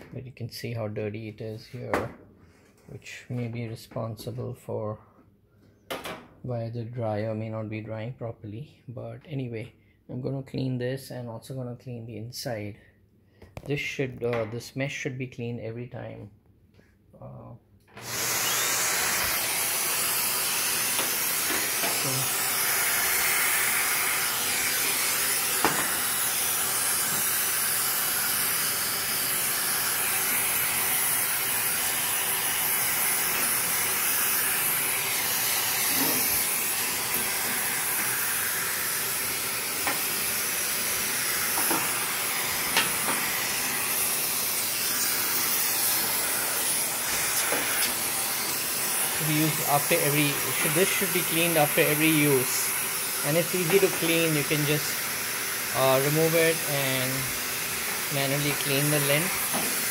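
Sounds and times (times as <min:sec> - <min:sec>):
vacuum cleaner running: 0:17.9 - 0:59.9.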